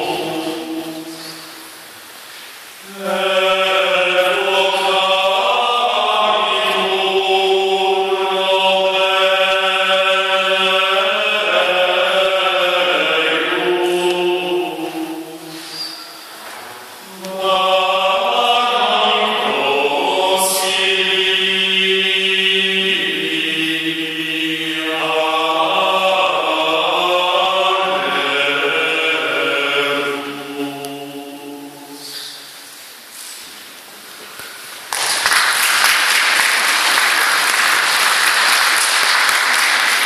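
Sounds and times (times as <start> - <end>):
male voices chanting a cappella: 0.0 - 1.8, 2.8 - 16.1, 17.0 - 32.5.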